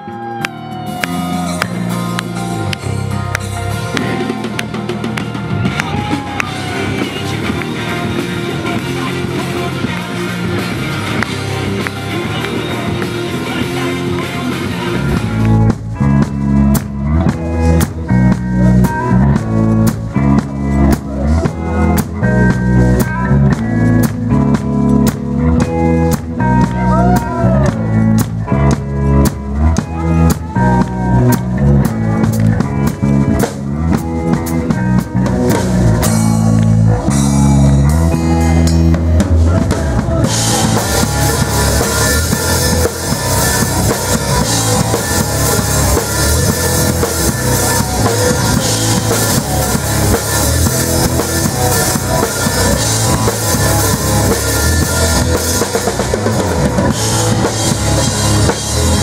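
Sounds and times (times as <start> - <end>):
person singing: 0.0 - 15.8, 26.4 - 28.2, 36.0 - 59.0
bass guitar: 0.0 - 59.0
drum kit: 0.0 - 59.0
electric guitar: 0.0 - 59.0.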